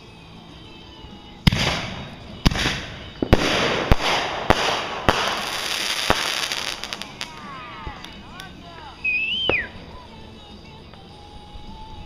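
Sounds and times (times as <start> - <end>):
fireworks crackling hiss: 1.3 - 12.0
fireworks bangs: 1.4 - 7.5.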